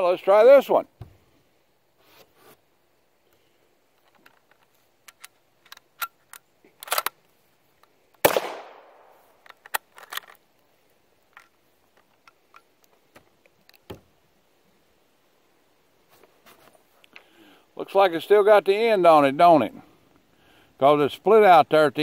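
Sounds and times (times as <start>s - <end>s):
rifle bolt metallic clicks: 4.1s - 7.2s, 9.4s - 10.4s
rifle shot: 8.2s - 9.3s.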